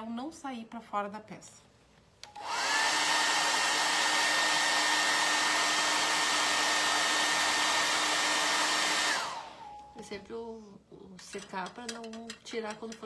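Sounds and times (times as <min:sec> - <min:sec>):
hair dryer running: 0:02.3 - 0:09.8.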